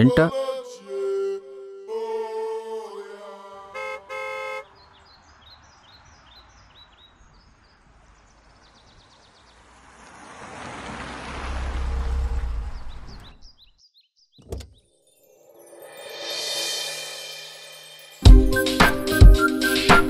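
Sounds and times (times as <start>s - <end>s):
car horn toots: 3.7s - 4.8s
rushing noise with low rumble: 7.1s - 13.5s
faint bird chirps: 12.6s - 15.8s.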